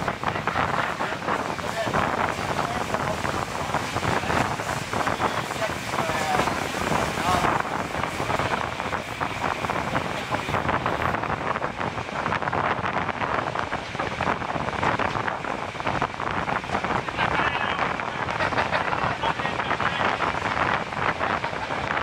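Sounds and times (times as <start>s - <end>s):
wind rush on microphone: 0.0s - 22.0s.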